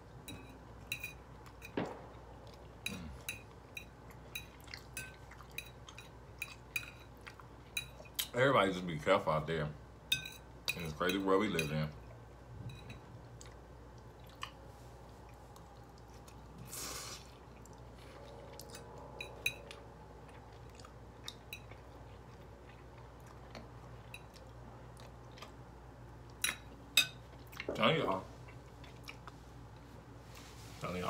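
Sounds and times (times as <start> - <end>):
person chewing: 1.4 - 8.3, 13.2 - 26.7, 28.4 - 29.9
brief hiss: 16.7 - 17.3.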